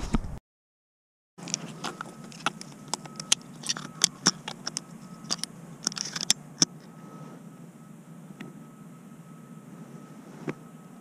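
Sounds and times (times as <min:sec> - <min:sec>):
hands handling a shotgun: 0:01.4 - 0:06.4
faint steady hum: 0:01.4 - 0:11.0.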